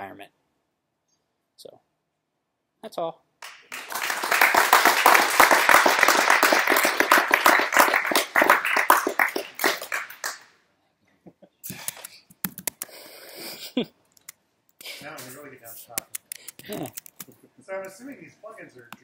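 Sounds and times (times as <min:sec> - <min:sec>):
audience clapping: 0:03.4 - 0:10.6.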